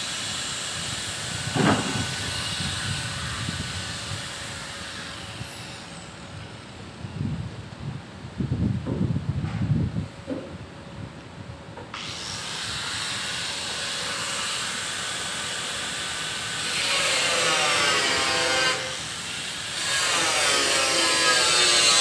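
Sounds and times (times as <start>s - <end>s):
electric power tool on steel: 0.0s - 7.0s, 11.9s - 22.0s.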